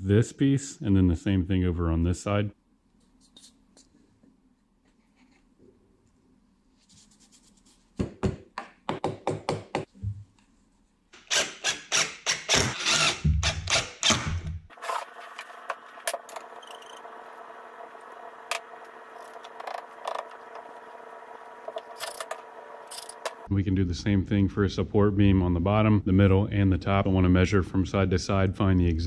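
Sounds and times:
impact driver driving screws: 11.2 - 14.4
steady hum: 15.0 - 28.5.

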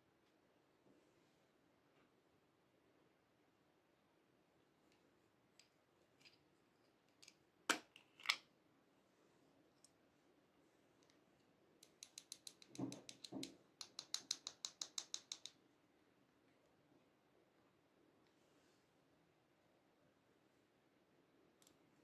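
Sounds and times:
plastic pot clicking: 11.8 - 15.5
sharp tapping ticks: 11.8 - 15.5.

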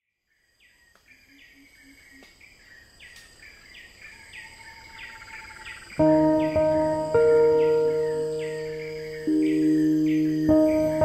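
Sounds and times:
soft low beeps: 9.2 - 10.7.

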